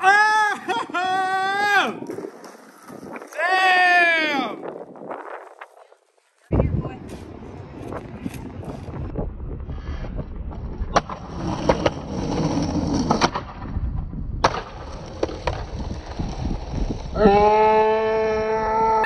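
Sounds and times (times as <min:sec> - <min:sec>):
person shouting: 0:00.0 - 0:02.0, 0:03.4 - 0:04.6, 0:17.2 - 0:19.0
skateboard wheels rolling: 0:00.1 - 0:19.0
skateboard popping and landing: 0:02.0 - 0:03.6, 0:10.4 - 0:17.2.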